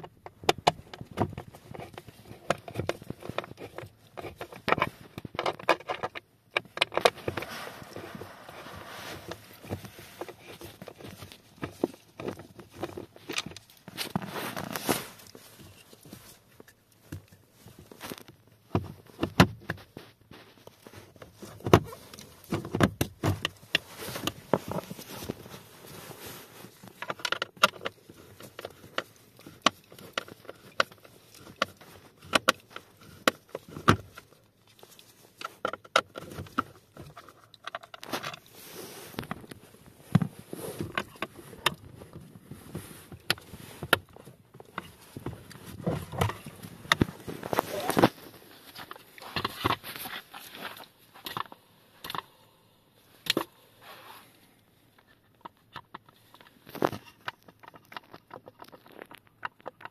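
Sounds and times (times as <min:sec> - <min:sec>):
plastic clicks knocks and rattles: 0:00.0 - 0:07.4, 0:26.8 - 0:38.4, 0:55.0 - 0:59.9.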